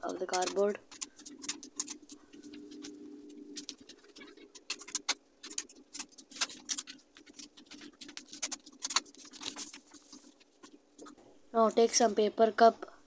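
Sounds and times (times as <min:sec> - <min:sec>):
paper rustling and crinkling: 0:00.0 - 0:11.2.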